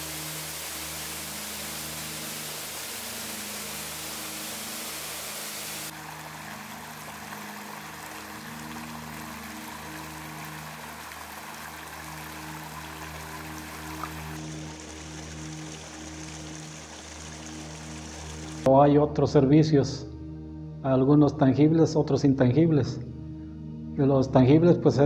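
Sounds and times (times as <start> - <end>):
stream flowing over stones: 0.0 - 18.7
waterfall rushing: 0.0 - 18.7
soft background music: 0.0 - 25.0.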